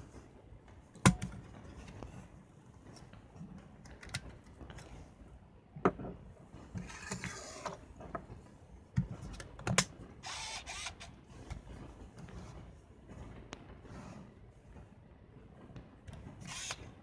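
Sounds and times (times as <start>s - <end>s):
camera motor whir: 10.2s - 11.2s, 16.4s - 16.9s.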